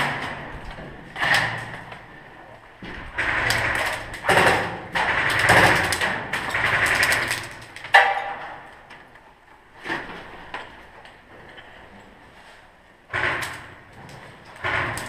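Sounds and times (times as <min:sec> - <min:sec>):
airsoft rifle firing bursts: 0:03.2 - 0:07.6
sharp crack: 0:03.2 - 0:08.6.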